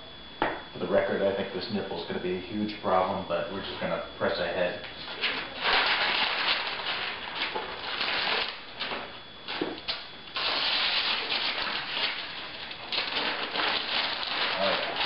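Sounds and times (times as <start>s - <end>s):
tape being peeled off paper: 5.2s - 15.0s.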